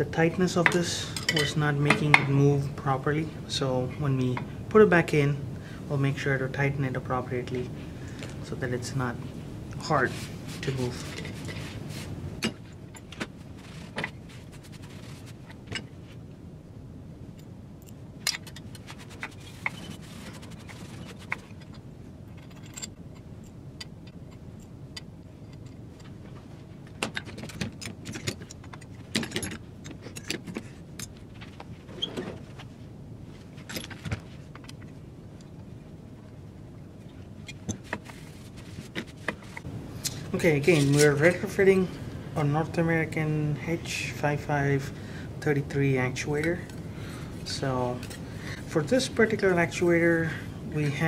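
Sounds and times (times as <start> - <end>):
tools clinking on steel plate: 0.6 - 2.1.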